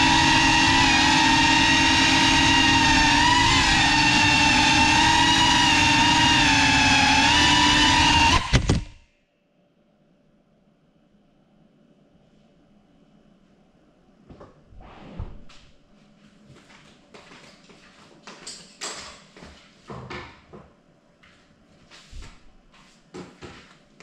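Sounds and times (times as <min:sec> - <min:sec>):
faint steady hum: 0:09.0 - 0:18.0
knocks clatters and rustles: 0:17.4 - 0:20.7.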